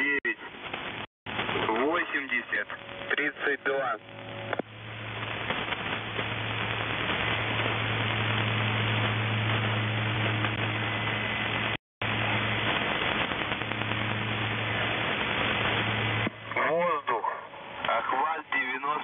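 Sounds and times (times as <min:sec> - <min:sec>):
shortwave radio static and hiss: 0:00.0 - 0:19.0
steady low hum: 0:00.5 - 0:19.0.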